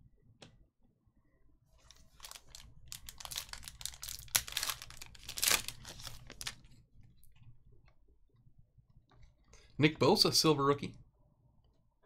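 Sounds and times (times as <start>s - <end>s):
plastic wrapper crinkling and tearing: 1.8s - 6.7s.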